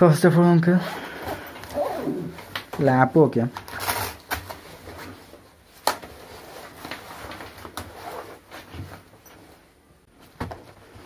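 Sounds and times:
bag fabric rustling: 3.6s - 11.0s.

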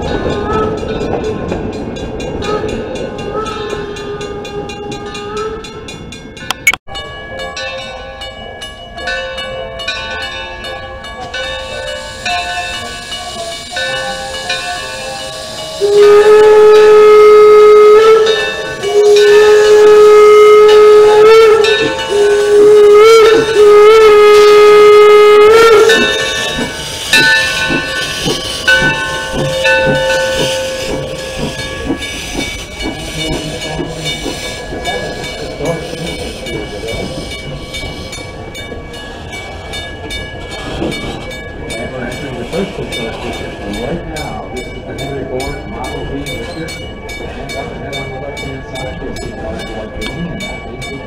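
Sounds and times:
steam train rolling past: 0.0s - 51.0s
steam whistle blasts: 11.9s - 37.0s.

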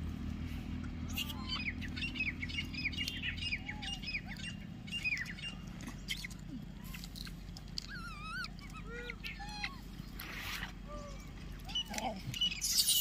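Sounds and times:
faint squeaky calls: 1.1s - 2.2s, 7.8s - 13.0s
bird chirps: 1.1s - 6.4s, 11.0s - 13.0s.

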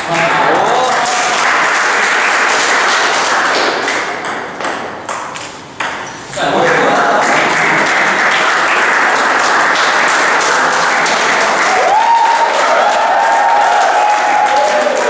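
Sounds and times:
crowd clapping: 0.0s - 4.2s, 6.4s - 15.0s
person shouting a cheer: 11.7s - 15.0s.

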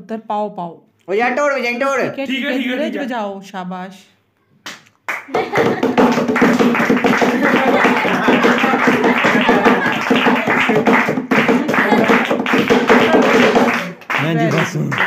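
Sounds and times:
rhythmic group clapping: 4.6s - 15.0s
hand slapping wooden desk: 4.7s - 13.9s.

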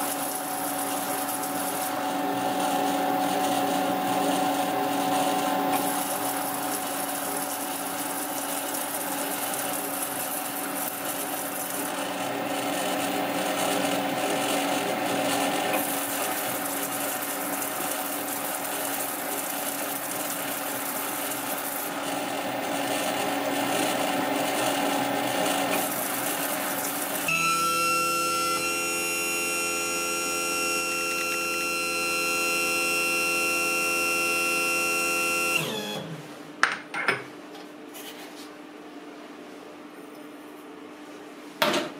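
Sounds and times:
machine whine of held tones: 27.2s - 36.2s.

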